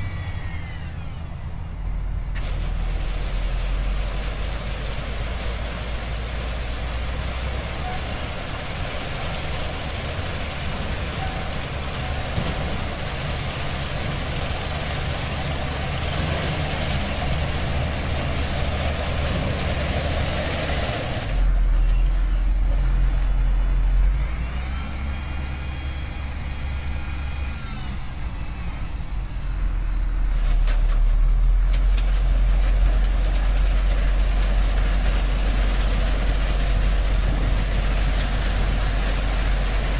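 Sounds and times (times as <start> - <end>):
heavy vehicle engine rumble: 0.0 - 39.9
hiss: 2.4 - 7.5.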